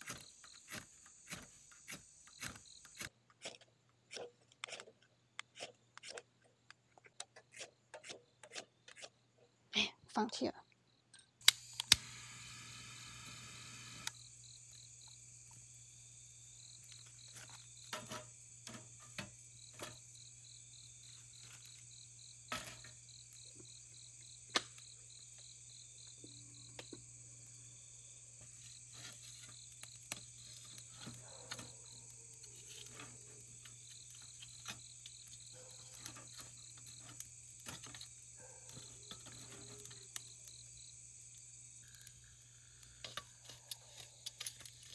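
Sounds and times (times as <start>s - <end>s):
insects trilling: 0.0s - 3.1s, 10.9s - 44.9s
rasping rub: 0.0s - 3.1s, 28.5s - 34.9s.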